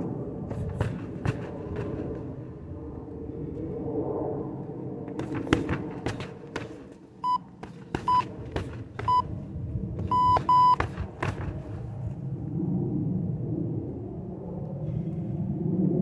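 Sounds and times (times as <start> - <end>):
electronic timer beeping: 10.1 - 10.8.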